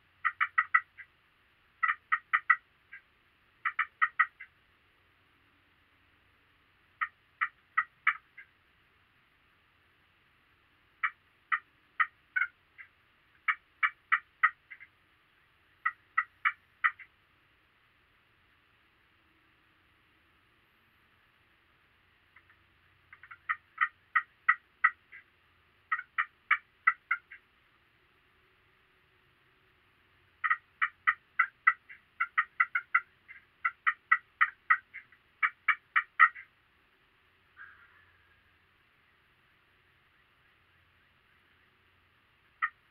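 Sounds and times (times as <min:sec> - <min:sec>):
turkey yelping: 0:00.2 - 0:01.1, 0:01.8 - 0:04.5, 0:07.0 - 0:08.5, 0:11.0 - 0:14.9, 0:15.8 - 0:17.1, 0:22.4 - 0:25.3, 0:25.9 - 0:27.4, 0:30.4 - 0:36.5, 0:37.6 - 0:38.4, 0:42.6 - 0:42.9.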